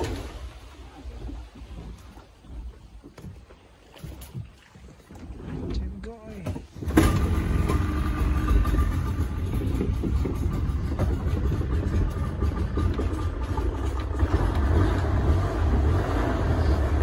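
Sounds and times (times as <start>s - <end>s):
outboard motor drone: 0.0s - 17.0s
water noise: 0.0s - 17.0s
wind noise: 6.5s - 17.0s.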